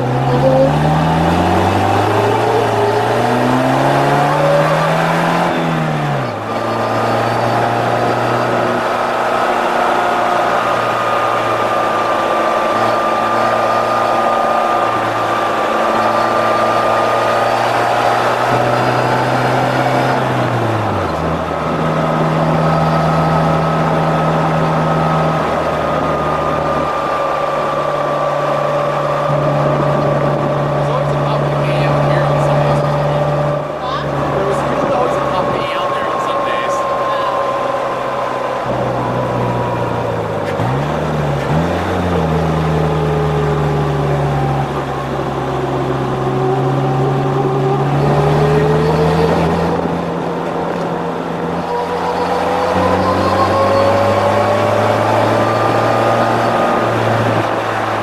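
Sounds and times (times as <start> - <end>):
engine accelerating and shifting: 0.0 - 58.0
wind and road noise: 0.0 - 58.0.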